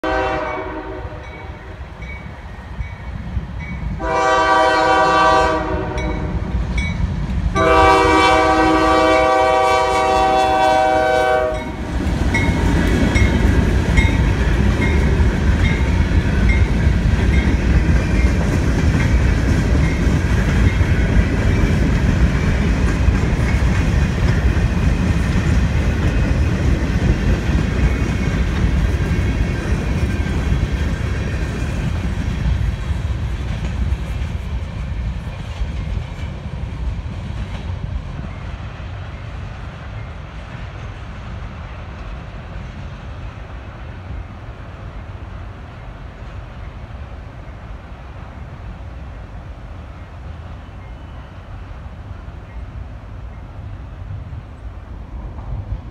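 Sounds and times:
train horn blasts: 0.0s - 1.8s, 4.0s - 6.6s, 7.6s - 11.9s
train wheels rumbling on rail: 0.0s - 55.9s.

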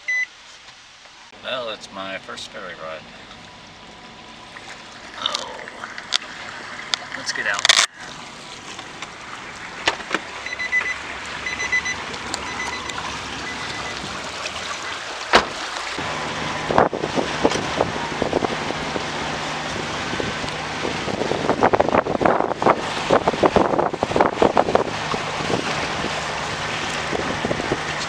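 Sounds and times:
high beeps: 0.0s - 0.3s, 10.4s - 14.0s
wind: 0.0s - 28.0s
ferry engine drone: 1.3s - 28.0s
low engine hum: 1.3s - 28.0s
wind buffeting microphone: 11.0s - 28.0s.

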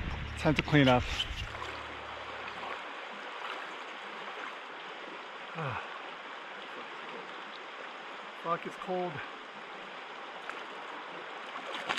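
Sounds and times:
creek flowing over rocks: 0.0s - 11.9s
person groaning: 5.6s - 5.9s.

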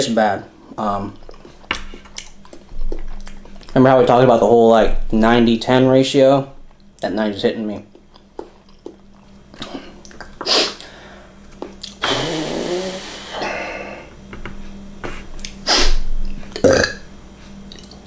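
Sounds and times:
man blowing out breath: 9.6s - 11.4s, 12.0s - 14.2s.

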